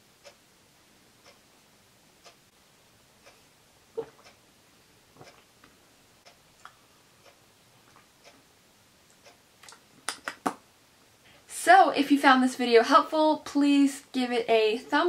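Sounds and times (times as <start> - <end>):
faint regular ticking: 0.1 - 3.5, 4.2 - 10.0.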